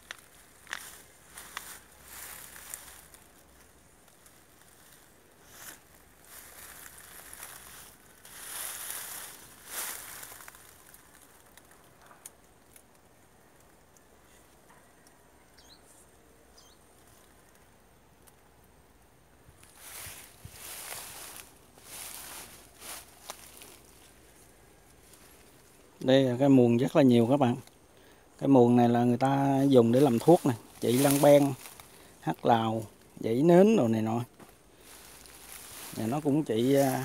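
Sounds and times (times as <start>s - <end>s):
leaves rustling: 0.0s - 14.6s, 16.8s - 18.4s, 19.3s - 37.0s.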